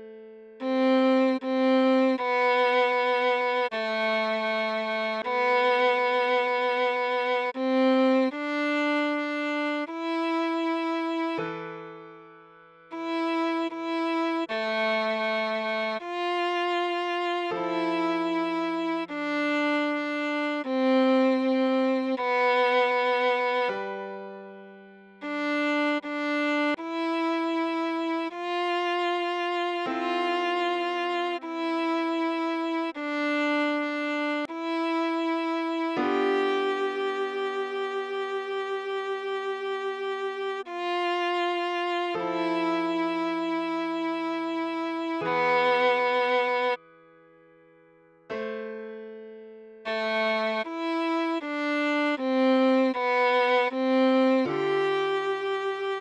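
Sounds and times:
viola playing slow melody: 0:00.0 - 0:47.2, 0:48.2 - 0:56.0.

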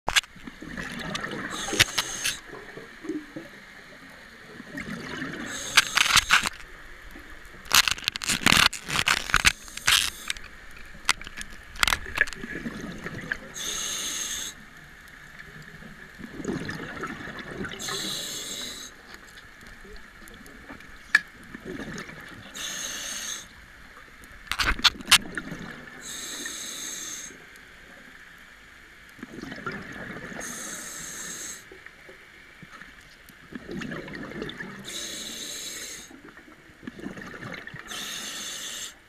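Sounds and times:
exhaled bubbles gurgling: 0:00.3 - 0:19.1, 0:19.8 - 0:23.2, 0:24.7 - 0:26.4, 0:29.2 - 0:31.6, 0:33.4 - 0:38.9
regulator inhales hissing: 0:01.5 - 0:02.4, 0:05.5 - 0:06.5, 0:13.6 - 0:14.6, 0:17.8 - 0:19.0, 0:22.5 - 0:23.5, 0:26.0 - 0:27.4, 0:30.4 - 0:31.7, 0:34.8 - 0:36.1, 0:37.9 - 0:39.0.

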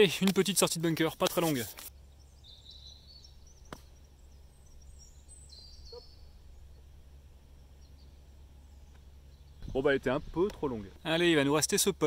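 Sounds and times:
outdoor background: 0:00.0 - 0:12.0
faint bird chirps: 0:01.9 - 0:10.1.

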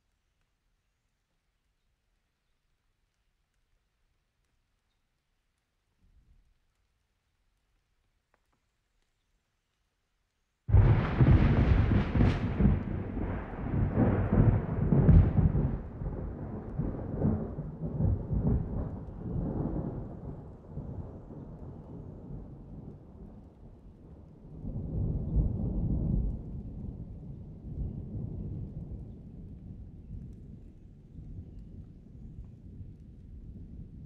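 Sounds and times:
wind buffeting microphone: 0:24.6 - 0:34.0.

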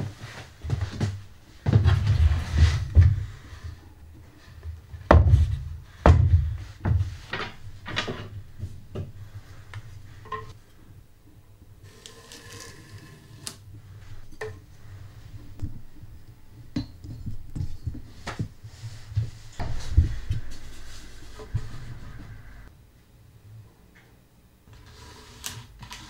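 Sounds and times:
low steady hum: 0:00.0 - 0:24.9
tools tapping on wooden bench: 0:16.7 - 0:18.5.

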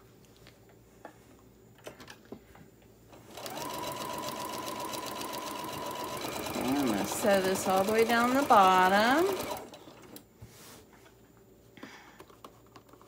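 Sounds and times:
electric sewing machine stitching: 0:03.2 - 0:10.2.

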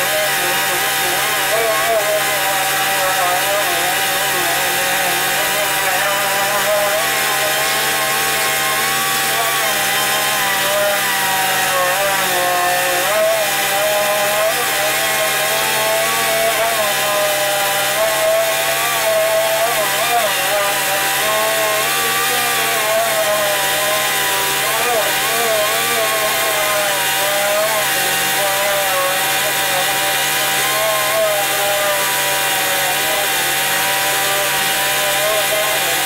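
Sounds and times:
air sander whining: 0:00.0 - 0:36.0.

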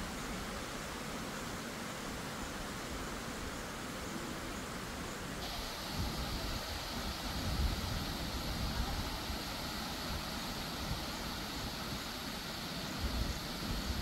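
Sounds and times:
steady rushing hiss: 0:00.0 - 0:14.0
wind rumbling on microphone: 0:05.4 - 0:14.0.

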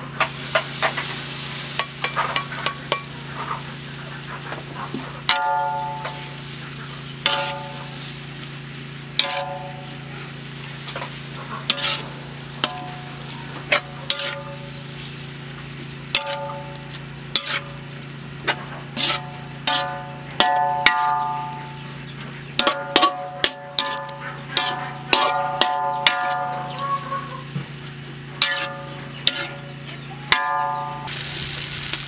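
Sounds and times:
frying sizzle: 0:00.0 - 0:32.0
metal spatula knocking on wok: 0:19.7 - 0:21.5, 0:22.6 - 0:26.8.

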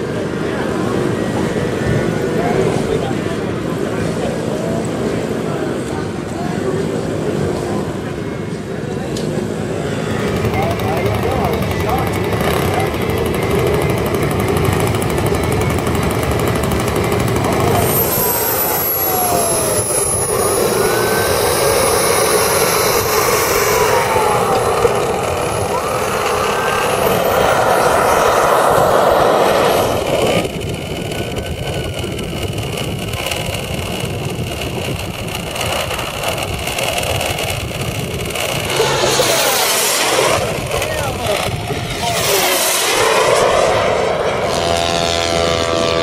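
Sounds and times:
model aircraft engines roaring: 0:00.0 - 0:46.0
model jet whine: 0:00.0 - 0:46.0.

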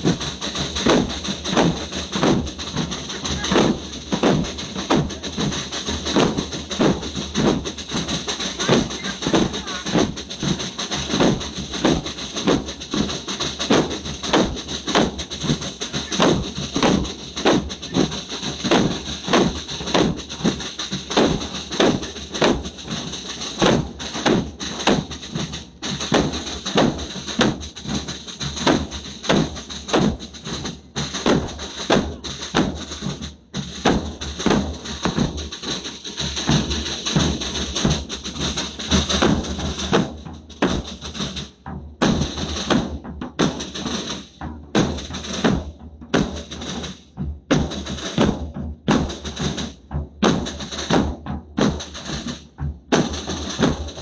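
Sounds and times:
bass drums pounding: 0:00.0 - 0:54.0.

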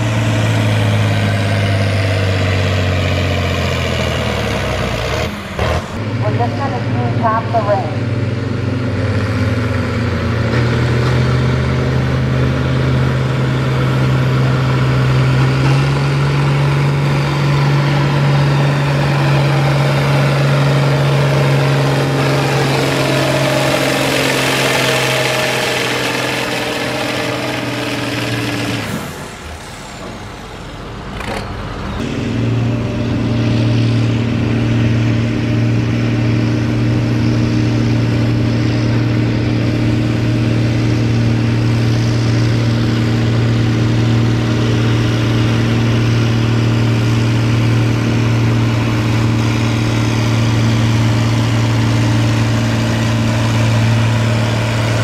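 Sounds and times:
tractor diesel engine under load: 0:00.0 - 0:55.0
tractor engine running steadily: 0:00.0 - 0:55.0.

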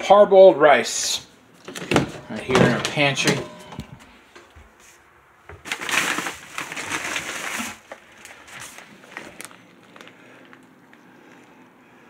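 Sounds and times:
plastic bag crinkling: 0:05.5 - 0:11.4.

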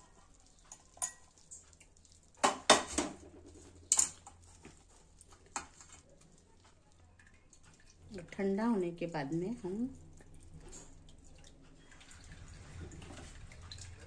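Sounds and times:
metal kitchenware clinking: 0:00.7 - 0:01.6, 0:02.4 - 0:04.3.

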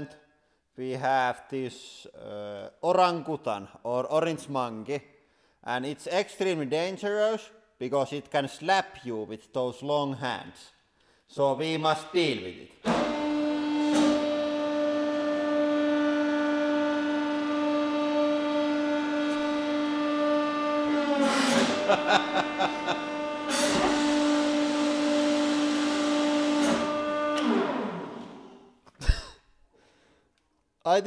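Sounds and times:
hydraulic pump whining: 0:12.8 - 0:28.7.

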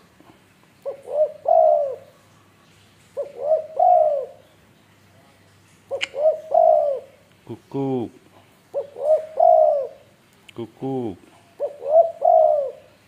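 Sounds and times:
dove cooing: 0:00.8 - 0:02.5, 0:03.2 - 0:04.5, 0:05.9 - 0:13.0.

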